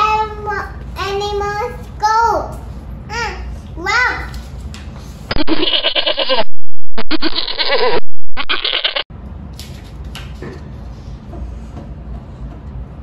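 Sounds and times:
goats bleating: 0:05.3 - 0:09.0.

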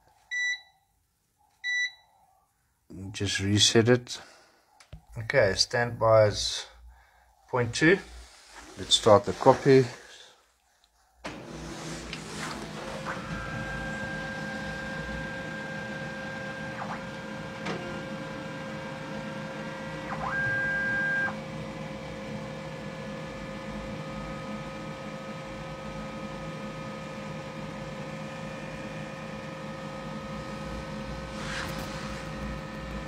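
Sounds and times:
printer machine hum and whine: 0:11.3 - 0:33.0
high machine tone: 0:13.1 - 0:21.4.

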